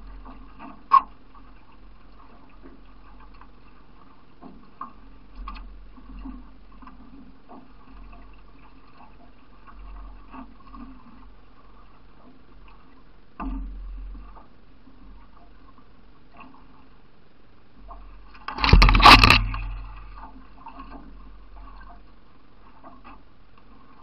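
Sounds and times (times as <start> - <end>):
paddle splashing water: 0.0 - 17.0, 17.6 - 24.0
paddle knocks on canoe: 18.4 - 20.3.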